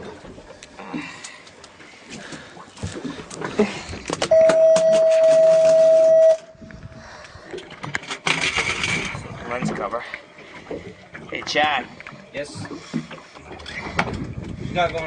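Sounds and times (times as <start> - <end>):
electronic beep: 4.3 - 6.4.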